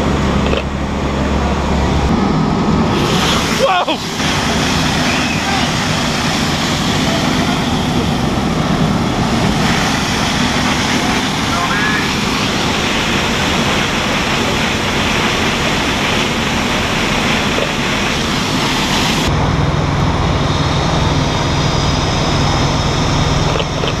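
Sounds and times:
fire engines idling hum: 0:00.0 - 0:24.0
water rushing from hoses: 0:01.1 - 0:19.3.

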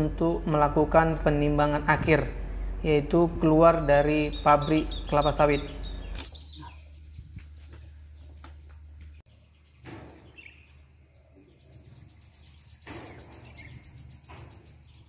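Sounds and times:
steady low hum: 0:00.0 - 0:09.2.

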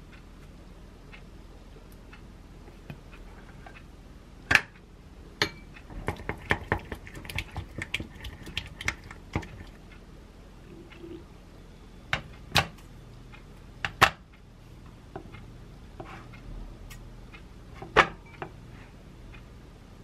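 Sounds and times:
spoon stirring thick sauce: 0:05.8 - 0:09.8.

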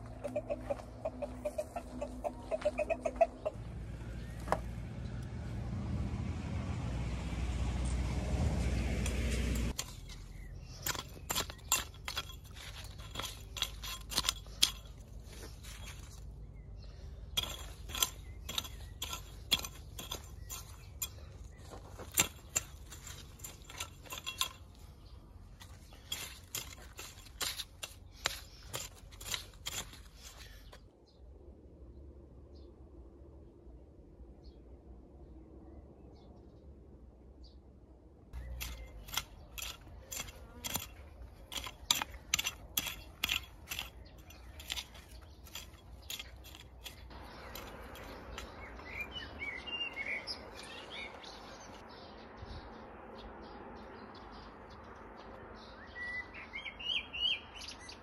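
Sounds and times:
hoe chopping into dry soil: 0:08.8 - 0:16.4, 0:17.3 - 0:25.0, 0:25.6 - 0:30.7, 0:38.4 - 0:51.8.

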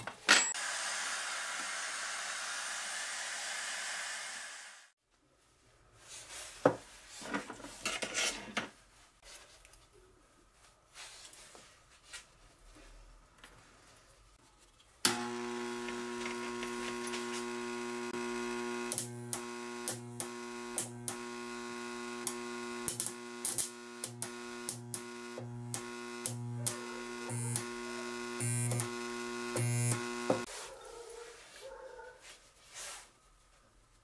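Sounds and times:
spot welder electrical hum: 0:15.0 - 0:30.5
sharp welding snaps: 0:18.9 - 0:21.4, 0:22.2 - 0:27.7.

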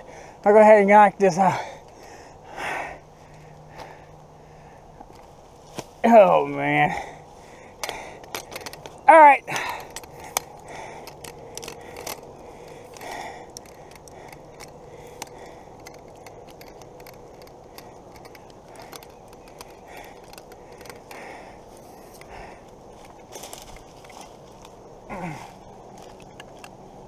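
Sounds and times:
metal tripod clicks and scrapes: 0:07.7 - 0:22.3, 0:26.0 - 0:27.0.

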